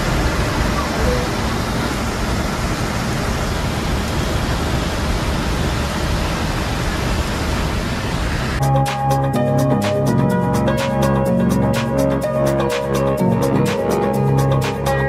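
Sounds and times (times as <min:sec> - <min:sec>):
bus engine: 0:00.0 - 0:08.6
rain: 0:00.0 - 0:08.6
tyres on wet road: 0:00.0 - 0:08.6
background music with a beat: 0:08.6 - 0:15.0.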